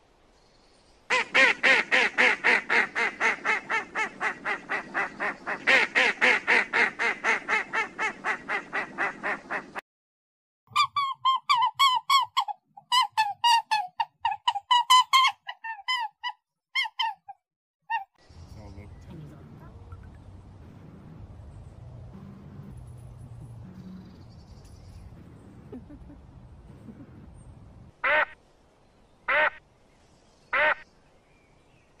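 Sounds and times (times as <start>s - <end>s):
ducks quacking rapidly: 1.1s - 9.8s, 28.0s - 28.4s
higher quick duck calls: 28.0s - 28.4s.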